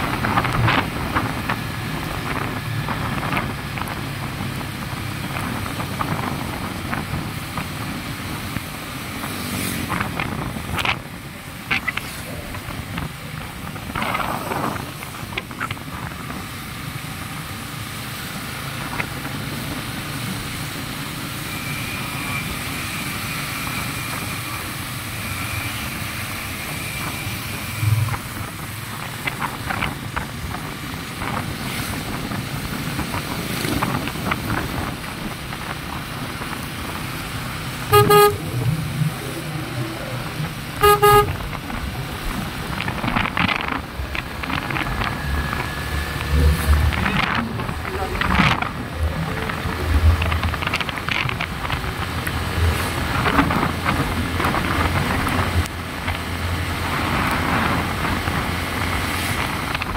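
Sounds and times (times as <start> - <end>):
wind: 0.0 - 59.9
motorcycle engine: 32.0 - 59.9
horn short beeps: 37.9 - 38.8, 40.8 - 41.4.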